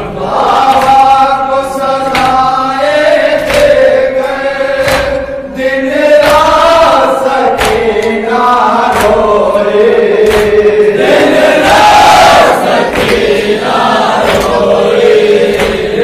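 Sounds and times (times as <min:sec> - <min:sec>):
men chanting a lament in unison: 0:00.0 - 0:16.0
hands slapping chests: 0:00.6 - 0:01.2, 0:02.0 - 0:02.6, 0:03.4 - 0:05.3, 0:07.5 - 0:08.2, 0:08.8 - 0:09.4, 0:10.2 - 0:10.7, 0:11.6 - 0:13.6, 0:14.2 - 0:14.8, 0:15.4 - 0:15.9.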